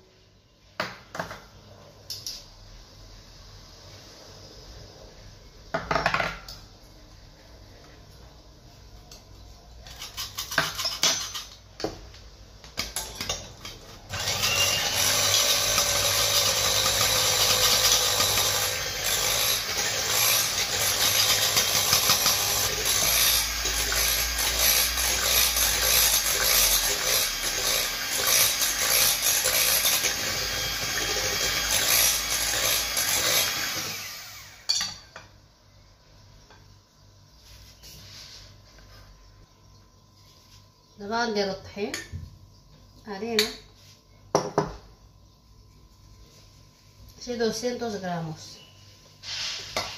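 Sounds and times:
electric hand mixer running: 14.1s - 34.7s.

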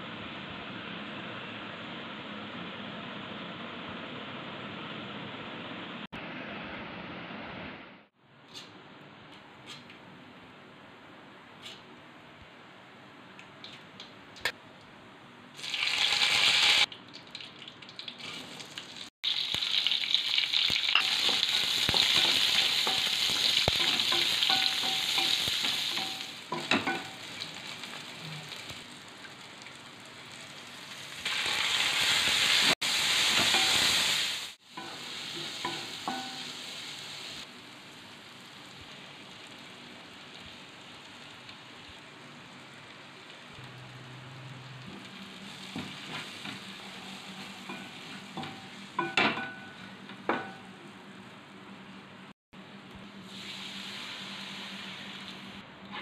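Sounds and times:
oil sizzling in a pan: 15.6s - 50.6s, 53.2s - 55.6s.

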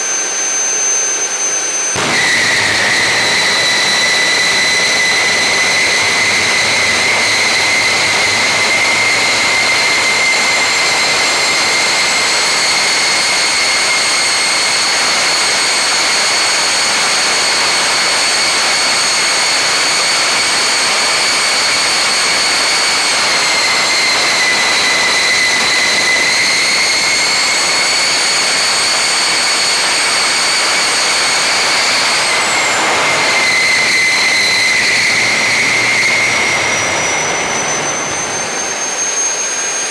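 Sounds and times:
high turbine whine: 0.0s - 39.9s
jet engine exhaust roar: 0.0s - 39.9s.

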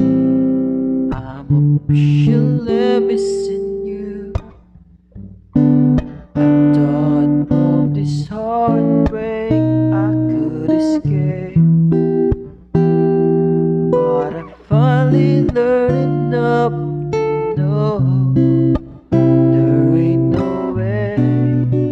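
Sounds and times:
acoustic guitar strummed: 0.0s - 21.9s
man singing: 1.1s - 4.6s, 6.4s - 12.3s, 13.9s - 21.9s.

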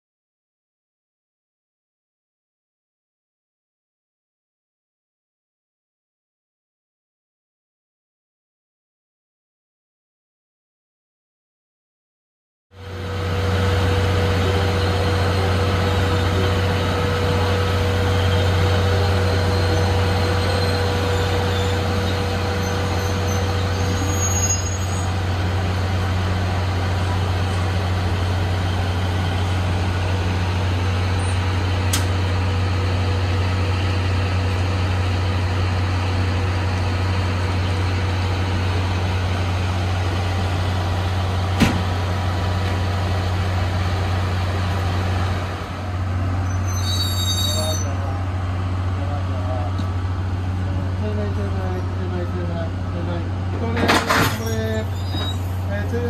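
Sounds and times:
electric train humming: 12.8s - 56.0s.

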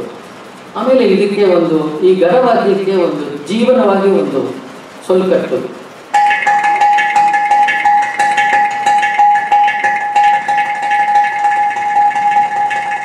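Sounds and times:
clay pot drum played fast: 6.1s - 13.0s.

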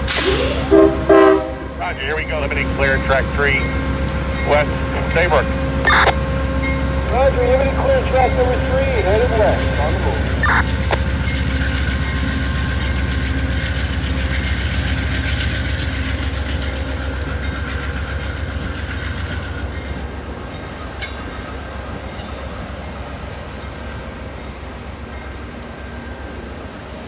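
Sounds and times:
diesel locomotive rumble: 0.0s - 27.0s
wheels clicking on rails: 6.6s - 23.9s.

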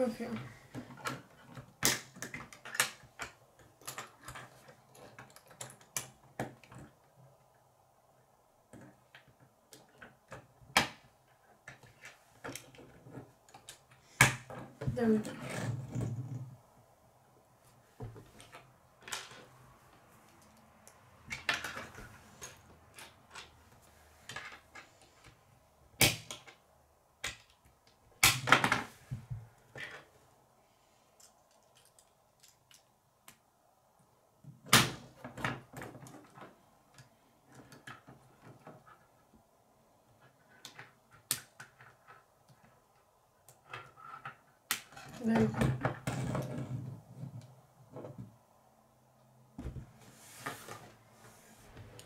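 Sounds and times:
plastic pieces clicking: 31.2s - 33.4s.

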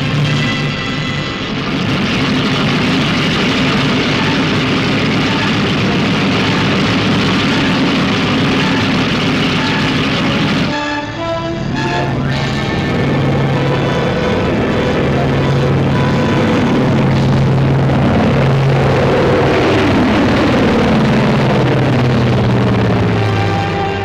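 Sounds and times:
music: 0.0s - 18.0s, 22.3s - 24.0s
aircraft engines roaring: 0.0s - 24.0s.

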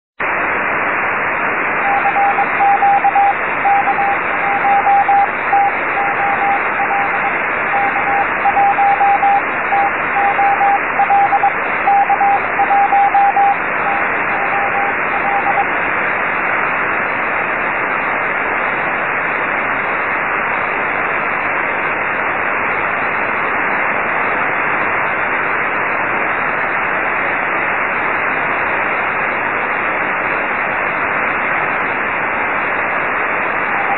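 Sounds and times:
radio receiver hiss: 0.2s - 33.9s
morse code tone: 1.8s - 15.7s, 33.6s - 33.9s.

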